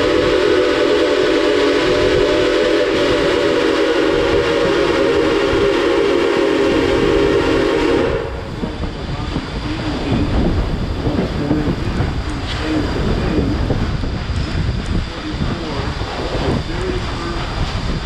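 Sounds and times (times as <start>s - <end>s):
steam whistle chord: 0.0s - 8.5s
train rumbling: 0.0s - 18.0s.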